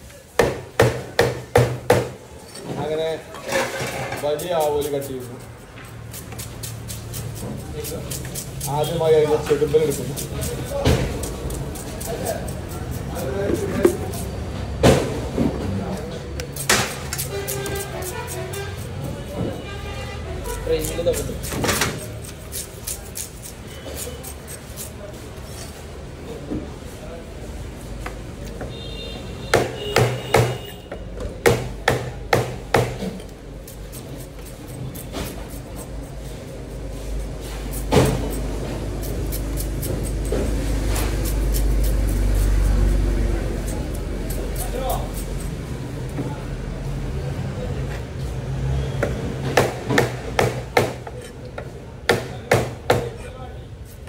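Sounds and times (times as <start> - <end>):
knife chopping fish on wooden block: 0.4 - 2.2, 29.6 - 30.6, 31.4 - 33.2, 49.6 - 51.2.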